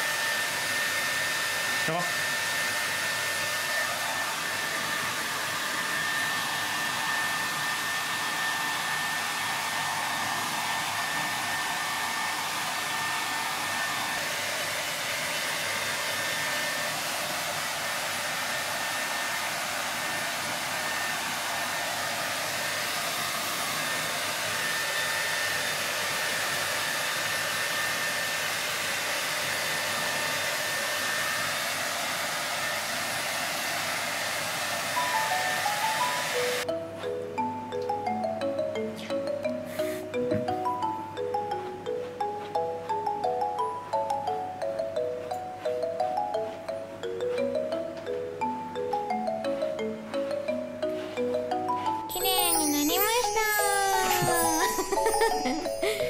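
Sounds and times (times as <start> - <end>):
hair dryer blowing: 0.0 - 36.8, 39.5 - 43.2, 53.2 - 56.0.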